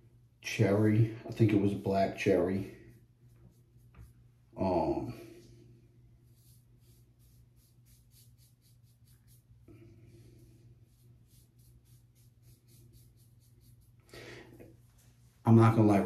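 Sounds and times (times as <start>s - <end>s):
razor scraping scalp: 6.2s - 9.6s, 10.8s - 14.0s.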